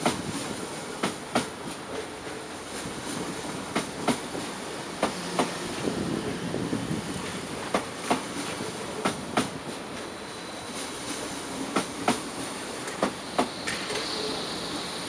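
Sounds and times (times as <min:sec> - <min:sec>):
train running gear rumble: 0:00.0 - 0:15.0
train wheels clicking over rail joint: 0:03.2 - 0:05.6, 0:11.1 - 0:14.4.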